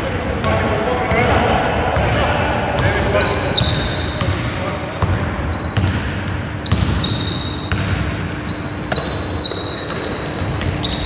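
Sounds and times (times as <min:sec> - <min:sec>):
basketball bouncing on hardwood: 0:07.7 - 0:08.1.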